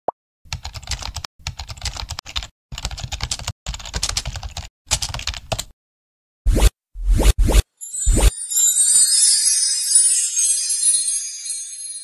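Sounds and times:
rapid keyboard key clicks: 0.5 - 5.7.

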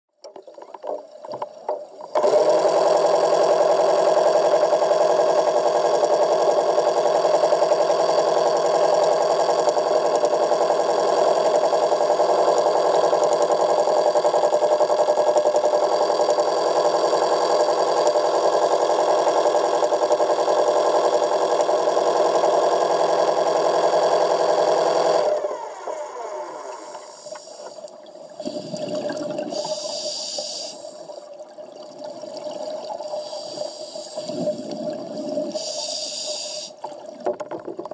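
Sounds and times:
electric motor whine: 2.2 - 27.8.

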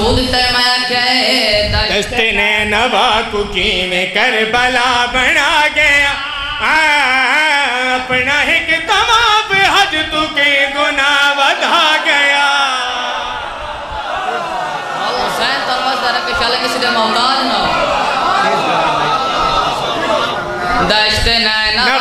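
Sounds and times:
boy and men chanting a lament: 0.0 - 13.4.

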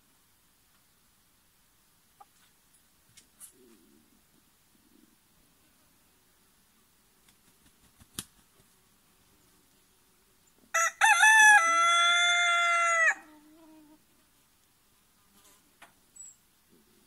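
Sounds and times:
rooster crowing: 10.7 - 13.4.

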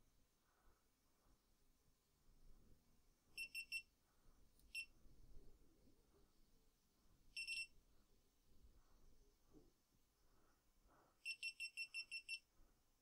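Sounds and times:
faint electronic beeps: 3.3 - 3.9, 7.3 - 7.8, 11.2 - 12.5.

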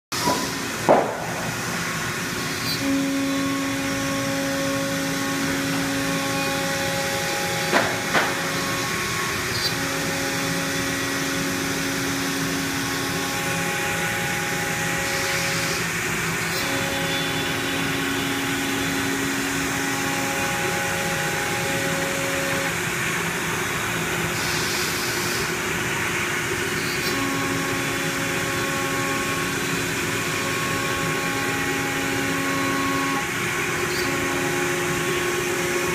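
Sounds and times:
pitched machine hum: 0.1 - 35.9
router spindle whirring: 1.5 - 35.9
sharp knocks: 7.7 - 8.4.

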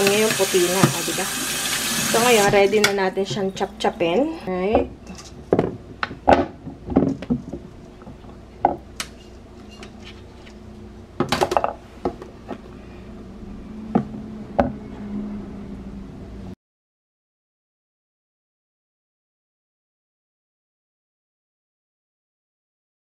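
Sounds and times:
steady low hum: 2.8 - 16.6.

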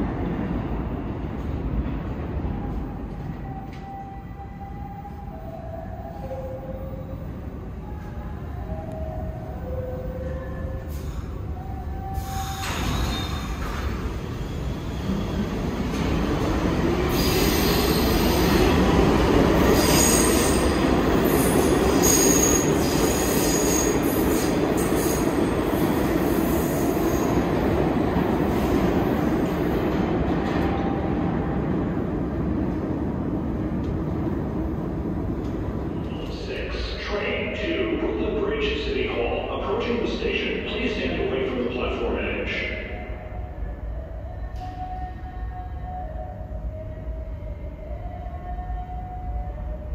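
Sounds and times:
subway train motors whining: 0.0 - 49.9
train rumble: 0.0 - 49.9
steel wheels squealing on rails: 8.0 - 15.5, 17.1 - 18.8, 19.6 - 27.4.

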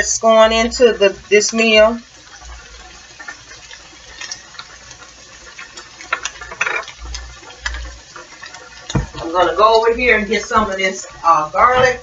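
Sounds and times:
meat frying in a skillet: 0.0 - 12.0
seasoning shaker rattle: 5.7 - 8.1.

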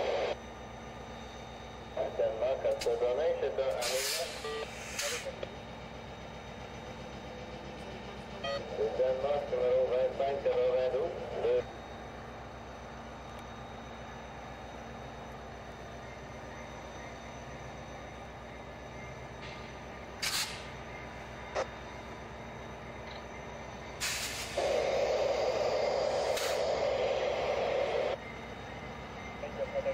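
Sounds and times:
train rolling past rumble: 4.8 - 29.9
bursts of hiss: 24.0 - 27.5.

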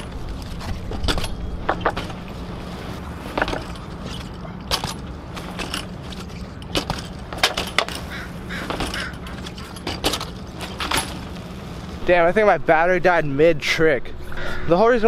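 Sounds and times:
bike clicks rattles and knocks: 0.0 - 11.9
steady low hum: 0.0 - 14.7.

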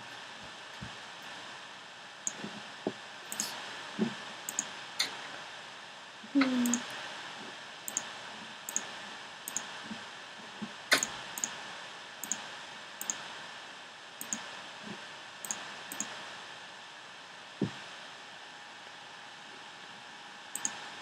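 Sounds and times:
faint steady hiss: 0.0 - 21.0
computer mouse clicks: 3.3 - 3.6, 4.5 - 5.1, 7.9 - 8.1, 8.7 - 8.9, 9.5 - 9.7, 10.9 - 11.6, 12.2 - 12.4, 13.0 - 13.2, 14.2 - 14.5, 15.4 - 16.1, 20.5 - 20.8.

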